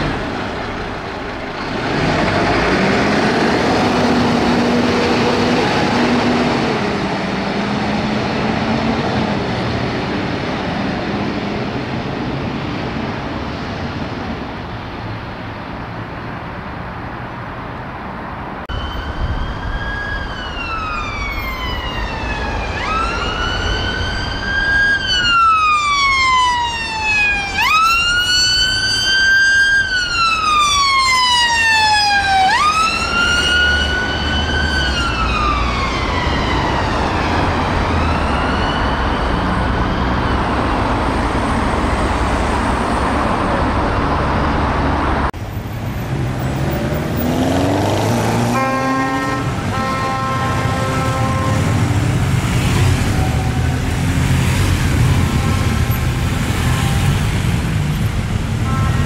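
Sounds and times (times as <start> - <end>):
vehicle engine: 0.0 - 25.0, 31.6 - 59.0
road noise: 0.0 - 59.0
ambulance siren wailing: 18.6 - 44.5, 48.1 - 57.4.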